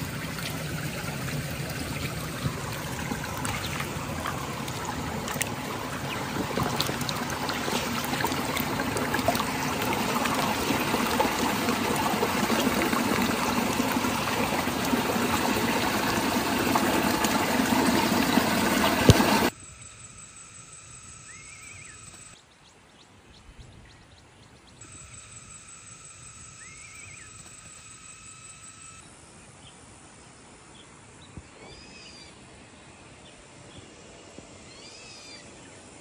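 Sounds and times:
water trickling over stones: 0:00.0 - 0:19.6.

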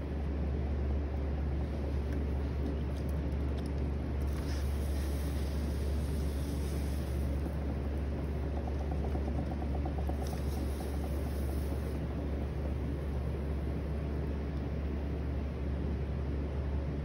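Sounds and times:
potter's wheel humming: 0:00.0 - 0:17.0
hands rubbing wet clay: 0:01.5 - 0:13.1.

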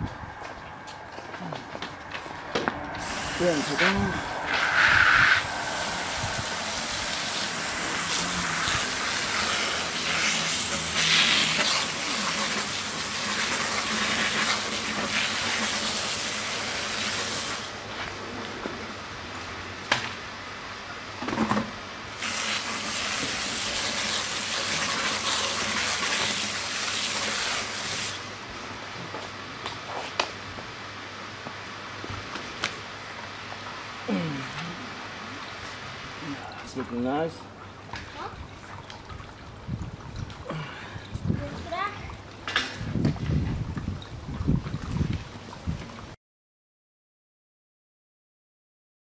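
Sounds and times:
water spraying from a hose: 0:03.0 - 0:17.8, 0:22.1 - 0:28.4.

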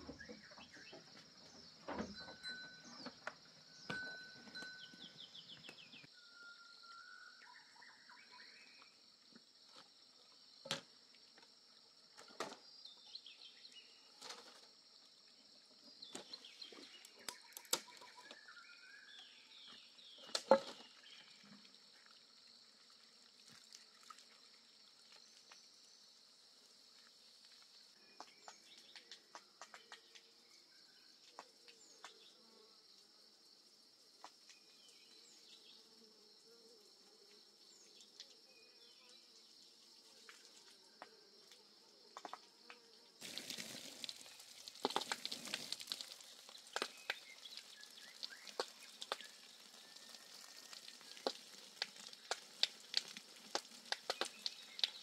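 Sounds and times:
bird chirps: 0:00.0 - 0:09.0, 0:16.0 - 0:21.3.

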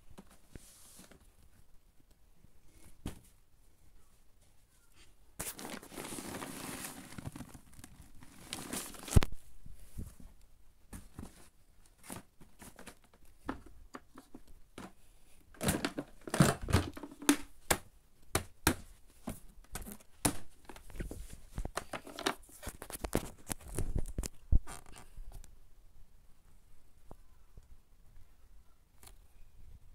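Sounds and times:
paper bag crinkling: 0:05.4 - 0:09.3
plastic parts clicking and knocking: 0:12.0 - 0:25.0.

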